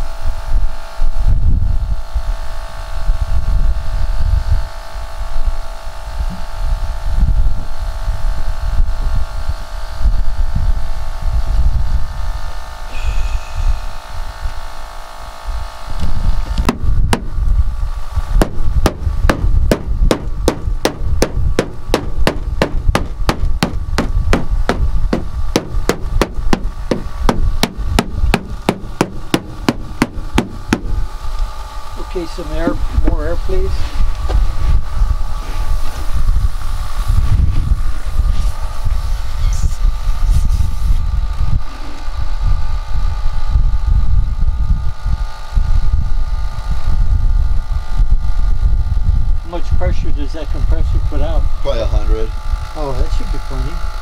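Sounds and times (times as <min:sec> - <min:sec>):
air compressor hum: 0:00.0 - 0:54.0
rubber mallet tapping steel panel: 0:18.4 - 0:30.9.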